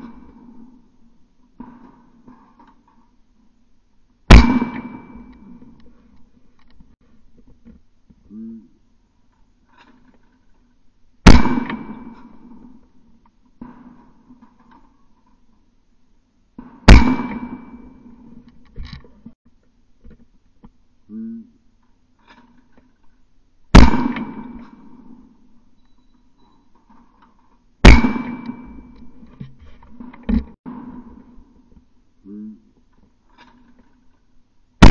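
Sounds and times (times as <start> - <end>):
shotgun shots with echo: 4.3 - 5.6, 11.2 - 12.8, 16.8 - 18.2, 23.7 - 25.2, 27.8 - 29.1.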